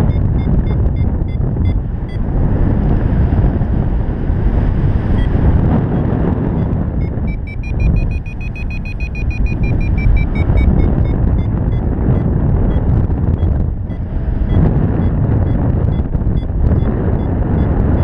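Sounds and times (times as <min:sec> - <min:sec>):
variometer beeping rapidly: 0:00.0 - 0:02.3, 0:05.1 - 0:18.0
wind rushing over microphone: 0:00.0 - 0:18.0.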